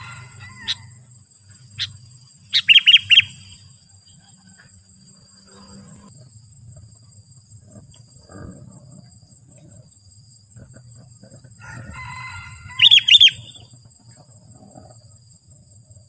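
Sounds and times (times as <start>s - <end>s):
bird chattering call: 1.8s - 3.5s, 12.8s - 13.6s.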